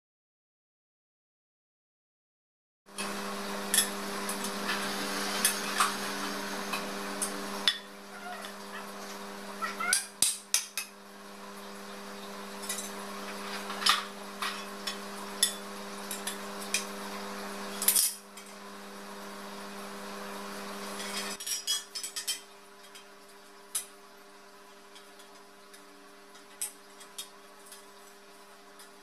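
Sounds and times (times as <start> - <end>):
steady low hum: 3.0 - 10.3.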